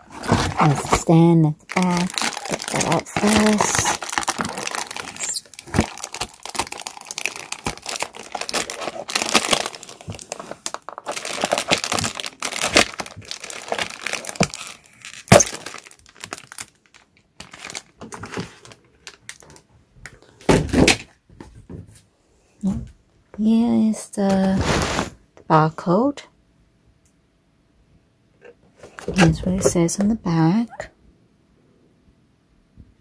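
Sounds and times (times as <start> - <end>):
cardboard box being handled: 0.0 - 1.2
plastic packaging crinkling: 0.0 - 21.0.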